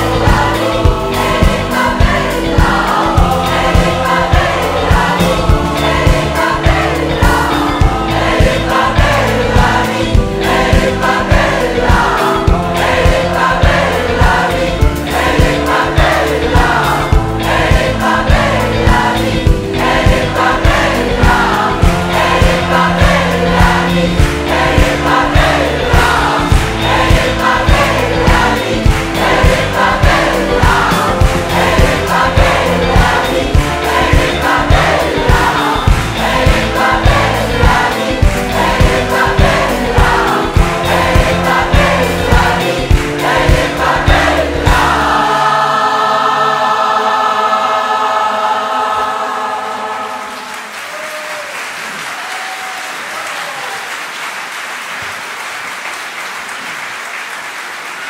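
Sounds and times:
band playing: 0.0s - 51.1s
choir singing: 0.0s - 52.0s
audience applause: 49.5s - 58.0s.

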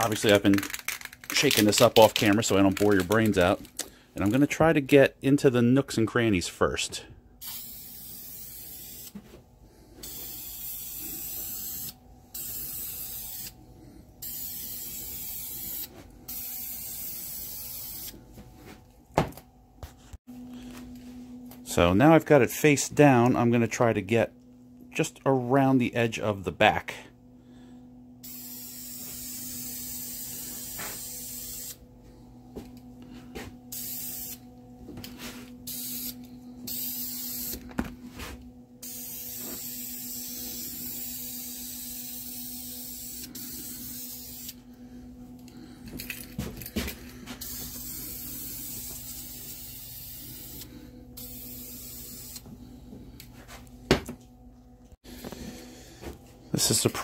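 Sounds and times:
steady low hum: 0.0s - 57.0s
spray paint can hissing: 7.4s - 9.1s, 10.0s - 13.5s, 14.2s - 18.1s, 28.2s - 31.8s, 33.7s - 34.4s, 35.7s - 37.6s, 38.8s - 44.6s, 47.4s - 50.6s, 51.2s - 52.4s.

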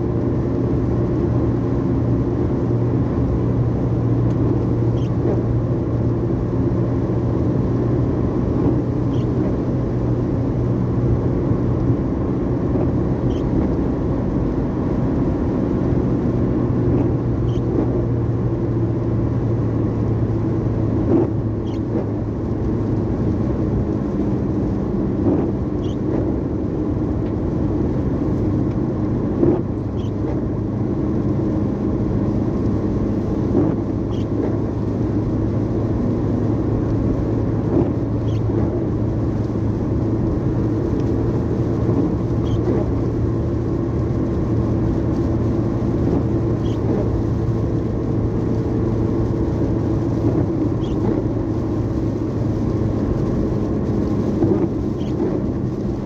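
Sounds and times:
car engine hum: 0.0s - 56.0s
road noise inside car: 0.0s - 56.0s.

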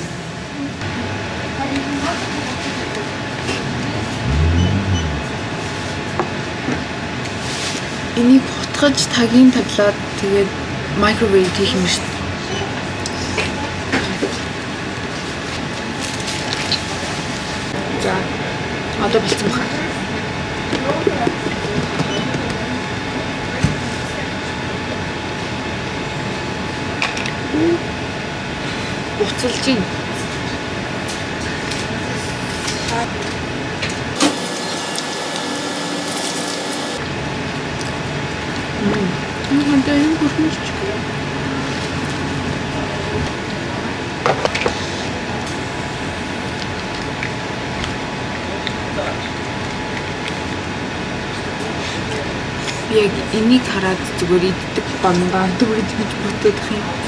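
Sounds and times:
ventilation and refrigeration noise: 0.0s - 57.0s.

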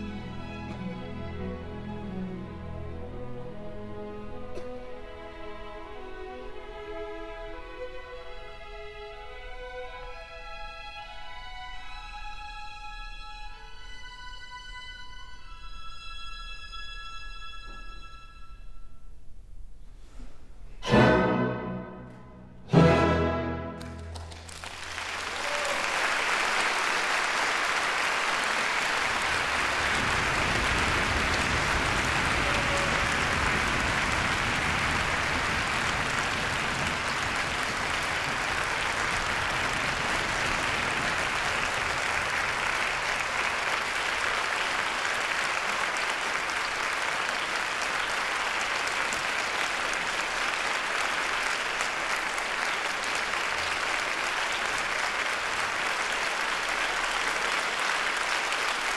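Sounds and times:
audience applauding: 23.6s - 58.9s.

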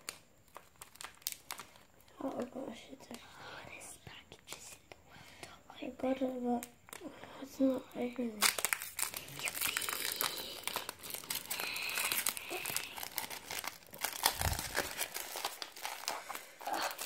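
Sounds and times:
foil wrapper crinkling and tearing: 0.0s - 2.7s, 6.2s - 17.0s.

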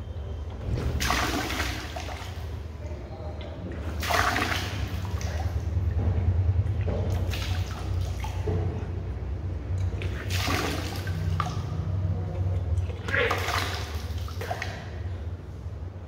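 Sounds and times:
water gushing into a bucket: 3.8s - 6.0s, 9.9s - 11.8s, 12.6s - 15.0s.

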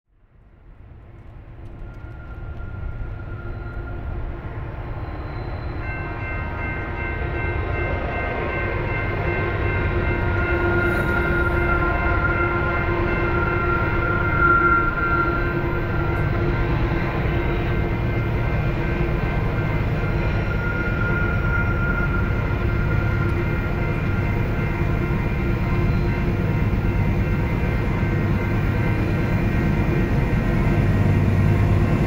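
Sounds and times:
steady high tones: 2.0s - 32.0s
locomotive engine rumble: 7.9s - 32.0s.

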